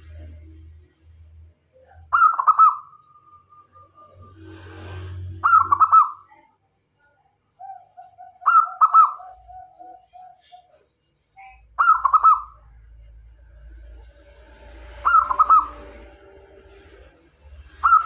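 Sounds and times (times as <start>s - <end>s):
dove cooing: 5.4s - 6.2s, 7.6s - 10.8s, 11.8s - 12.5s, 15.0s - 16.1s.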